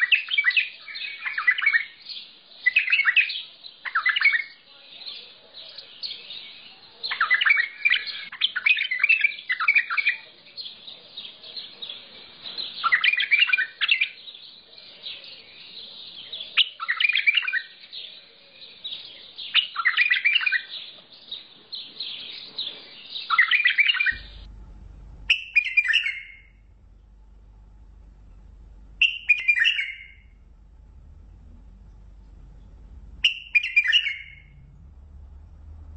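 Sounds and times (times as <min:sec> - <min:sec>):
bird singing warbled phrases: 0:00.0 - 0:24.4, 0:25.3 - 0:26.8, 0:28.9 - 0:34.7
steady hiss: 0:24.1 - 0:25.6
low hum: 0:24.1 - 0:35.9.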